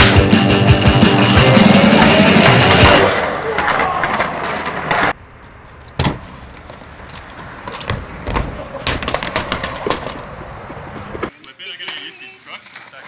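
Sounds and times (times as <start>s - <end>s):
skateboard rolling and clacking: 1.6s - 5.2s, 7.8s - 11.2s.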